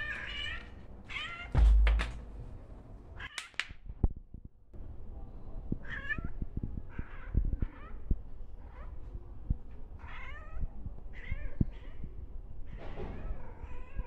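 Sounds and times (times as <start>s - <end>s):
loud low thump: 1.6s - 2.3s.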